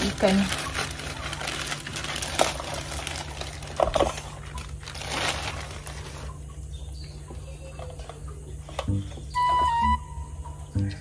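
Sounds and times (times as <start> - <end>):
plastic bag rustling and crinkling: 0.0 - 6.5.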